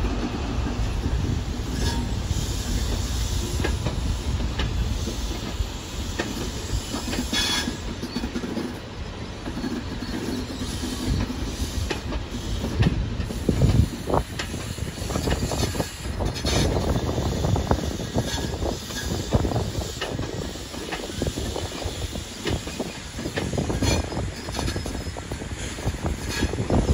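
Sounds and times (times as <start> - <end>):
train rumbling past: 0.0 - 26.9.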